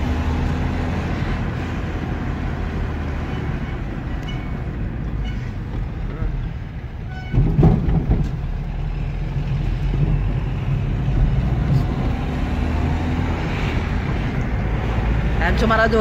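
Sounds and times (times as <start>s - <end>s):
car engine and road rumble: 0.0s - 16.0s
short knocks or rattles: 7.2s - 8.6s.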